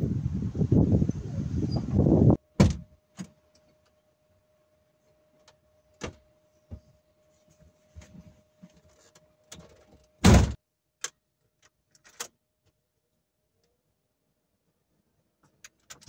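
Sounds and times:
truck door slamming shut: 0:02.6 - 0:02.9, 0:10.2 - 0:10.6
soft knocks and rustling: 0:06.0 - 0:10.0.

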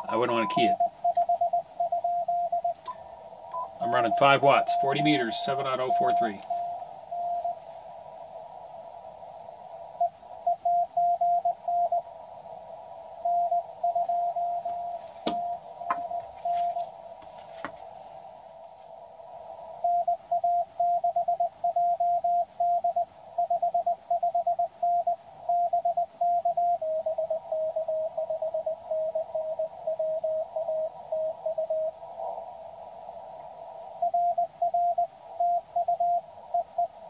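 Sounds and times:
morse code tones: 0:00.0 - 0:02.9, 0:03.5 - 0:07.6, 0:13.3 - 0:16.8, 0:19.9 - 0:32.0, 0:34.0 - 0:37.0
radio hiss: 0:00.0 - 0:20.6, 0:26.8 - 0:37.0.

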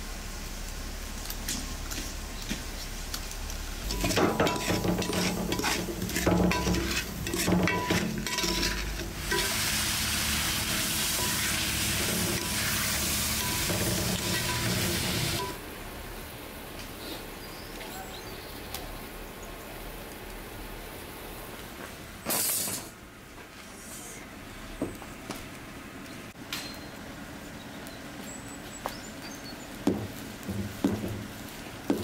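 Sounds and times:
pot simmering: 0:00.0 - 0:15.8
steaming pot hissing: 0:03.8 - 0:15.6
spoon scraping metal pot: 0:03.9 - 0:09.7, 0:10.6 - 0:15.6.

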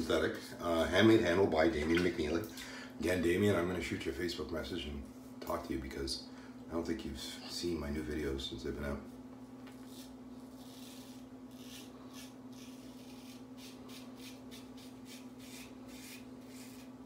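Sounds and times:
steady low hum: 0:00.0 - 0:17.0
razor scraping stubble: 0:09.7 - 0:17.0.

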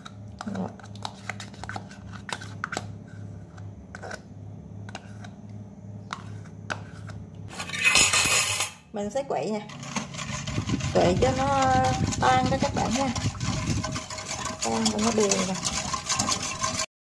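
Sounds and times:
pulsing low hum: 0:09.7 - 0:16.9
utensils clicking against bowls: 0:09.7 - 0:16.9.

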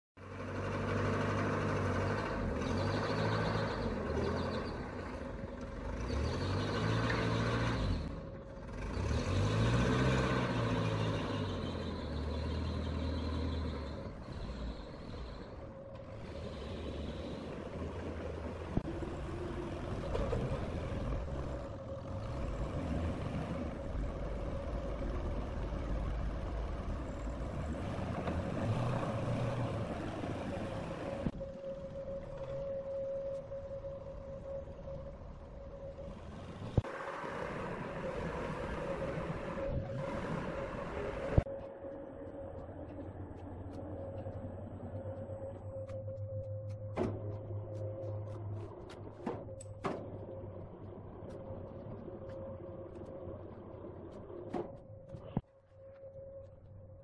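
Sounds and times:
forklift engine revving: 0:00.2 - 0:31.4.

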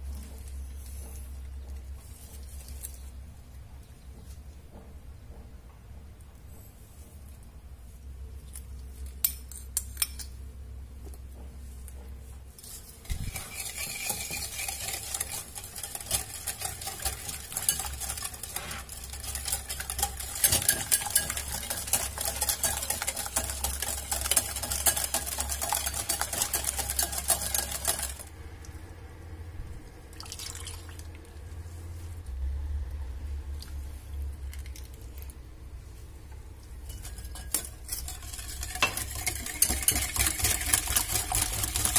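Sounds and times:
whisk rattling in bowl: 0:12.8 - 0:28.3, 0:36.8 - 0:41.9.

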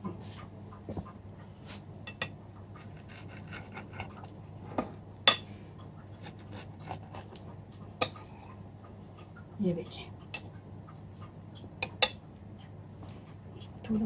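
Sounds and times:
utensil scraping ceramic plate: 0:02.8 - 0:04.3.

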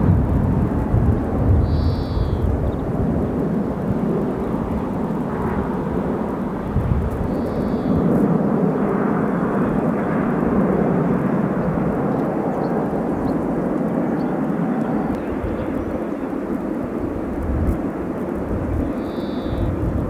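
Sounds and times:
jet airliner flying past: 0:00.0 - 0:20.0.

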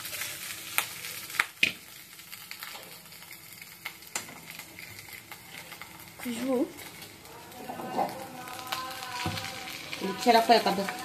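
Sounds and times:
food sizzling in oil: 0:00.0 - 0:11.0.

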